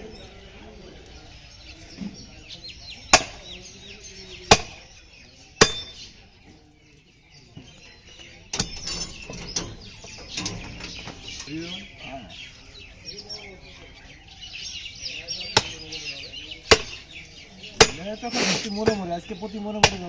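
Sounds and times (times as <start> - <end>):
cleaver chopping on wooden block: 3.1 - 3.4, 4.5 - 4.8, 16.7 - 17.0, 17.8 - 18.0.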